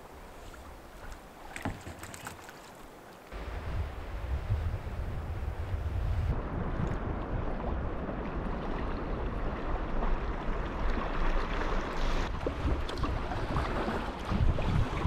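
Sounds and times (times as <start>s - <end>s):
waves on open sea: 0.0s - 15.0s
wind at sea: 0.0s - 15.0s
wind rumbling on microphone: 3.3s - 15.0s.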